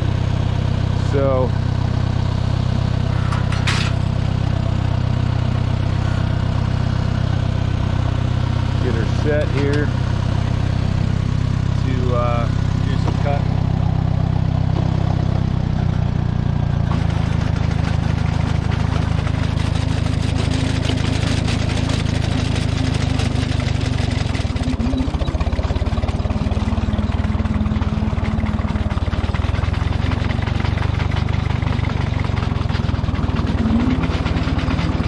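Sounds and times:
tractor engine running at low revs: 0.0s - 35.0s.

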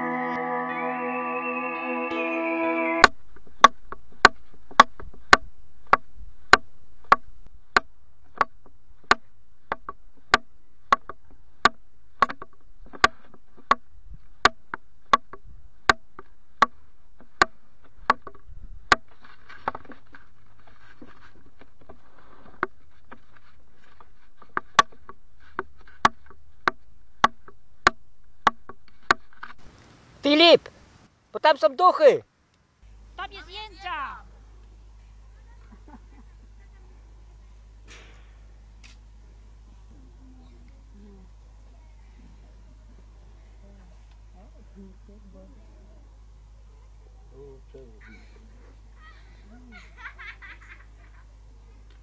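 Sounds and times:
hollow wooden knocks: 3.6s - 20.1s, 21.0s - 29.6s.

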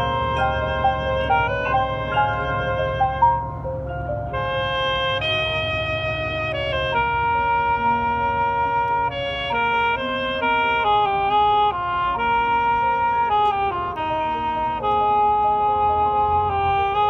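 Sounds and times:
marching band playing held chords: 0.0s - 7.4s.

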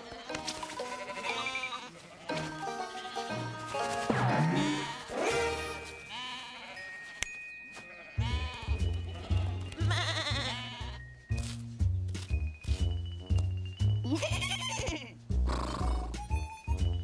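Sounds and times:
cartoon sheep bleating: 0.0s - 3.5s, 4.2s - 6.8s, 8.1s - 8.8s, 9.8s - 11.0s, 14.1s - 15.1s.

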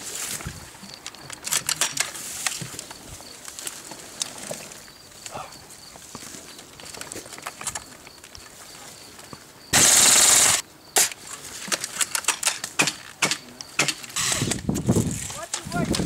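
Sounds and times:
airsoft rifle full-auto burst: 9.7s - 10.6s, 14.2s - 14.5s.

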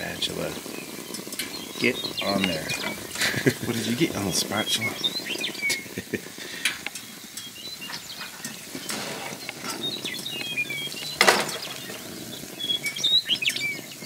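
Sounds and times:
small birds chirping: 0.0s - 14.0s
spatula scraping frying pan: 7.7s - 12.4s.

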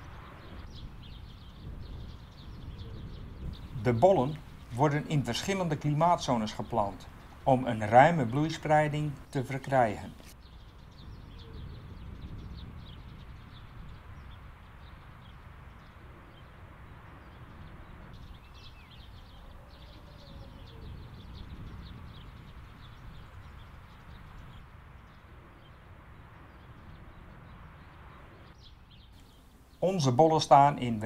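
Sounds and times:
high bird chirps: 18.2s - 24.5s.

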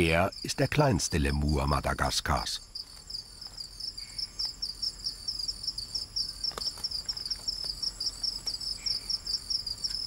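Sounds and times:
crickets chirping: 0.0s - 10.0s
high insect trill: 0.0s - 10.0s.

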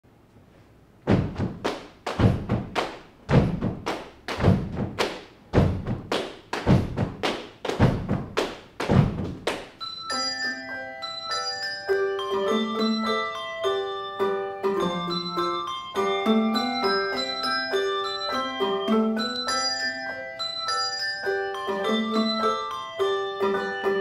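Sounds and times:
unpitched knocks and thuds: 1.0s - 9.5s
handbells ringing a melody: 9.8s - 24.0s.

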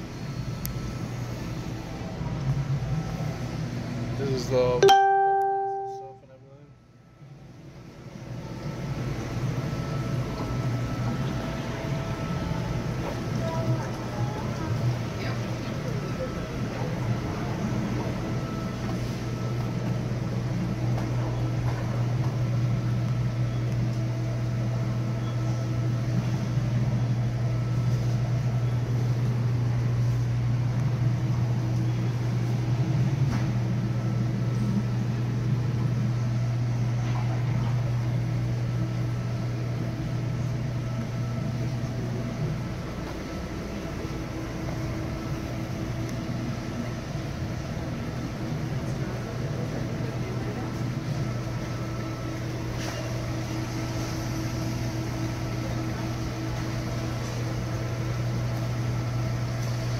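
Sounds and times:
low machine hum: 0.0s - 59.9s
faint high tones: 4.8s - 6.3s.

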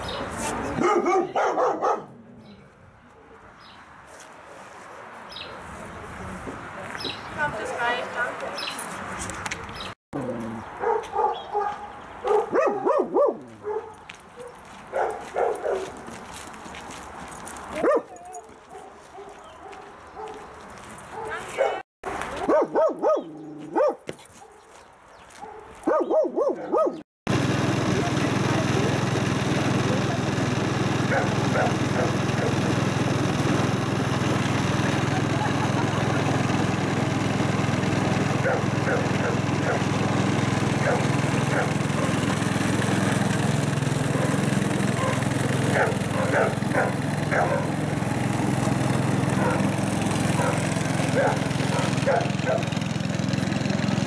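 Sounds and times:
dog barking: 0.8s - 2.2s, 10.8s - 16.0s, 17.8s - 24.7s, 25.4s - 27.0s, 31.1s - 32.6s, 38.4s - 39.8s, 40.8s - 42.2s, 44.1s - 44.4s, 45.0s - 47.7s, 49.4s - 49.7s, 50.4s - 52.7s.

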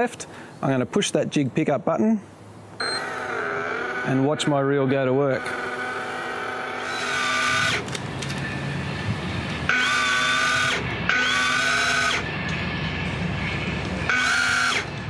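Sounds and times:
electric fishing reel motor whining: 2.9s - 4.4s, 5.3s - 8.8s, 9.7s - 12.3s, 14.0s - 15.0s.

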